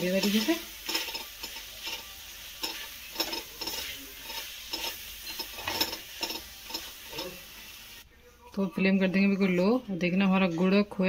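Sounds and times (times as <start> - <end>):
spatula scraping metal pan: 0.0 - 7.4
pan sizzling: 0.0 - 8.1.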